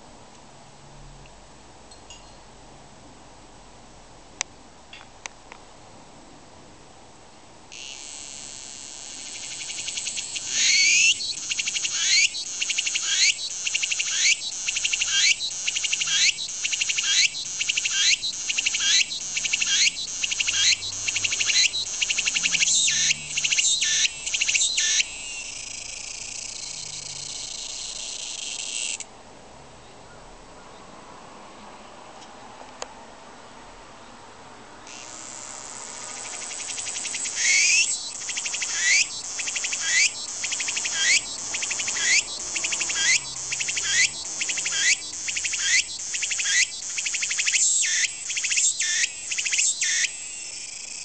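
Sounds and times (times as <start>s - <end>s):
cicada singing: 7.7s - 29.0s, 34.9s - 51.0s.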